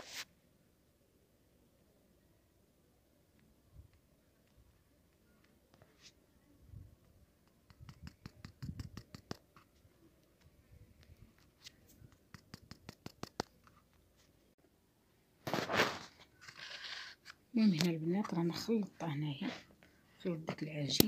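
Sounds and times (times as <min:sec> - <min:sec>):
rustle: 0:00.0 - 0:00.4
utensil scraping plastic bowl: 0:15.5 - 0:17.4.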